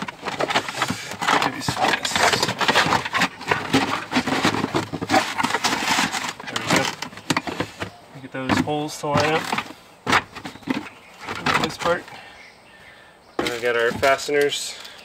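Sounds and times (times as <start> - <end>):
carpeted liner scraping and rustling: 0.0 - 7.8.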